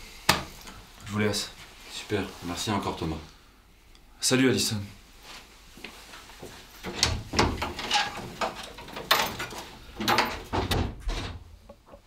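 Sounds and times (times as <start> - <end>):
door knocks and clunks: 6.8 - 11.6.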